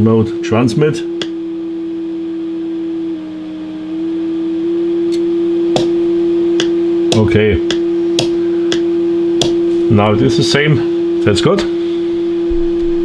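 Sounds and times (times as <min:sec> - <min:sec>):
radio beat tone: 0:05.4 - 0:11.6.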